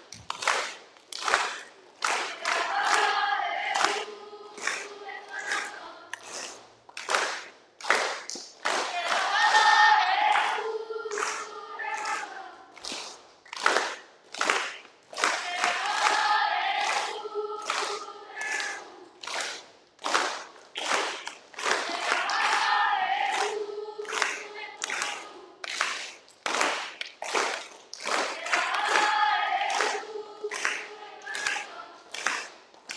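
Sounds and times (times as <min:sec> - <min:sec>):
group of voices singing: 0:01.4 - 0:06.6, 0:08.7 - 0:13.0, 0:15.2 - 0:19.6, 0:21.6 - 0:26.1, 0:28.1 - 0:32.7.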